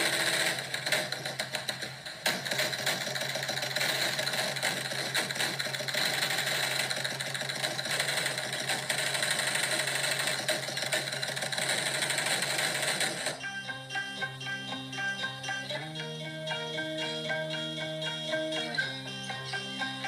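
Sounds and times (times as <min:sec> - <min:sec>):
mechanical engine drone: 0:00.0 - 0:20.0.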